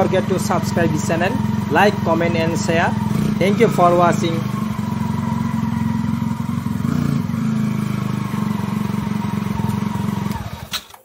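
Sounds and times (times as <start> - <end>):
motorcycle engine idling: 0.0 - 10.7.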